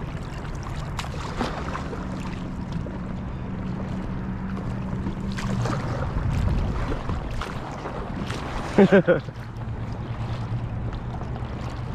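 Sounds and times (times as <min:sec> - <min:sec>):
low steady hum: 0:00.0 - 0:11.9
paddle splashing in water: 0:00.0 - 0:11.9
wind on microphone: 0:05.0 - 0:08.7.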